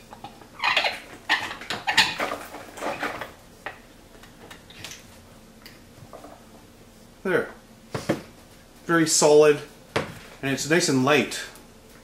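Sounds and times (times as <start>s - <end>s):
wooden clamp screw squeaking: 0.6s - 2.2s.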